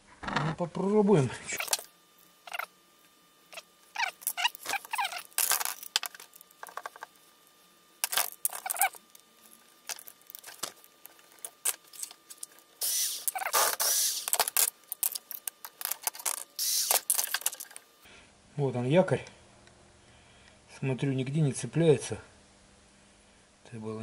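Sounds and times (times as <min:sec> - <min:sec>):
clicks and rattles of handled parts: 0:04.2 - 0:07.1, 0:08.0 - 0:12.6, 0:13.2 - 0:17.9.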